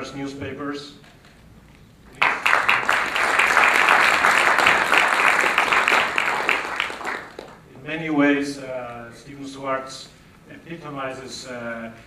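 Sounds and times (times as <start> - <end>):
audience applauding: 2.1 - 7.6.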